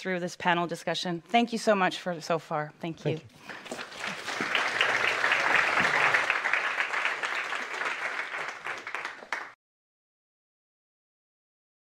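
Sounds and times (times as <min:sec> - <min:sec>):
audience applauding: 0:03.5 - 0:09.6.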